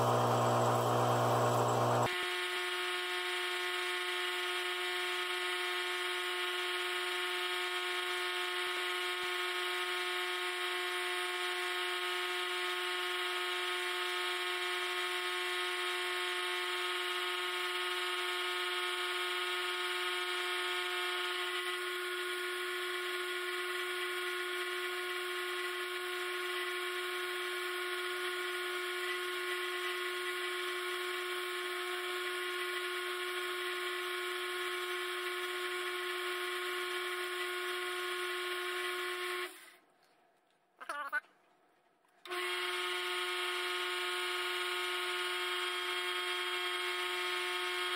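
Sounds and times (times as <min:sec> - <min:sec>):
metal lathe whining: 0:00.0 - 0:02.1.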